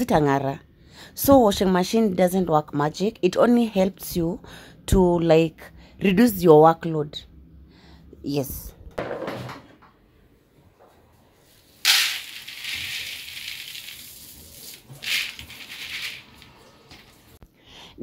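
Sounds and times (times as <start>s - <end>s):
nuts pouring into plastic colander: 11.7s - 16.6s.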